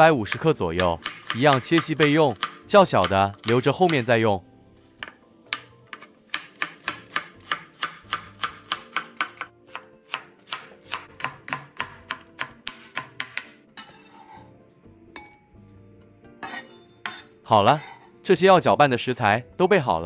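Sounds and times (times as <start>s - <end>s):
cleaver knocking on cutting board: 10.6s - 13.5s.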